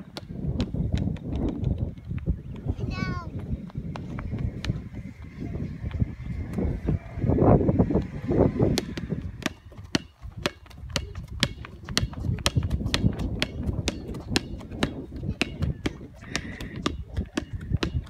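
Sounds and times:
basketball bouncing on road: 0.0s - 2.7s, 3.3s - 18.0s
running footsteps on asphalt: 0.0s - 18.0s
low rumble: 3.3s - 10.4s.

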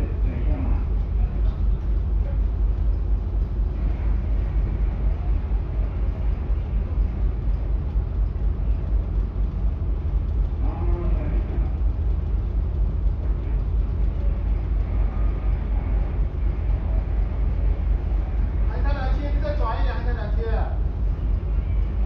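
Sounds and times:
ship low rumble: 0.0s - 22.0s.

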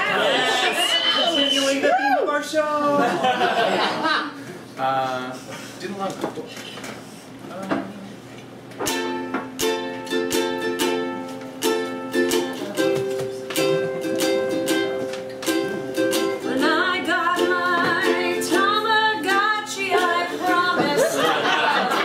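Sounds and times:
ukulele strumming chords: 8.8s - 22.0s
person singing: 12.0s - 14.8s, 15.5s - 21.4s.

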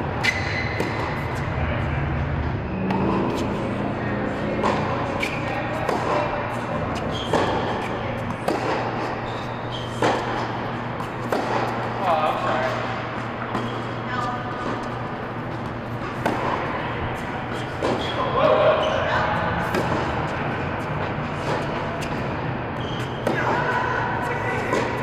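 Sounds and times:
ball bouncing on hard court: 0.2s - 1.4s, 4.5s - 18.5s, 21.0s - 25.0s
rackets striking tennis ball: 0.2s - 1.5s, 2.8s - 18.9s, 19.6s - 25.0s.

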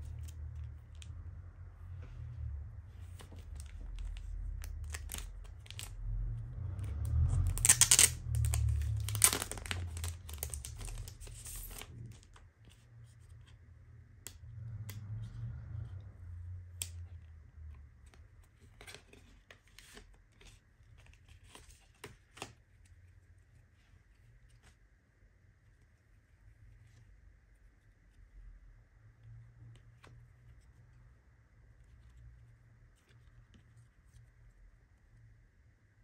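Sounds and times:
rustling of card and plastic: 2.2s - 13.6s, 17.8s - 24.8s
packaging tearing and unwrapping: 3.4s - 6.0s, 6.8s - 12.3s.

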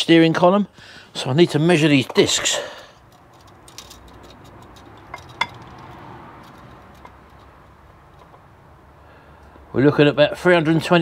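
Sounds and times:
metal tape measure clinking: 3.1s - 7.4s.

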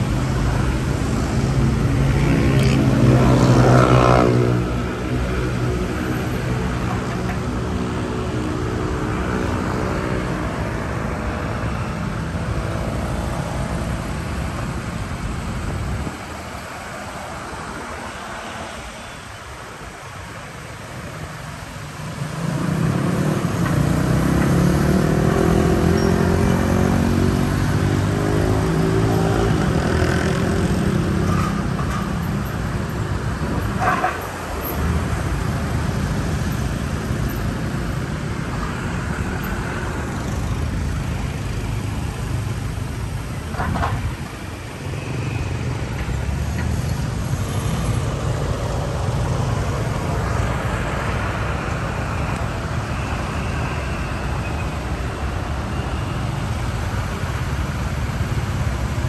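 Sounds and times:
motorbike and car engines rumbling: 0.0s - 59.0s
vehicle accelerating away: 22.6s - 30.6s.

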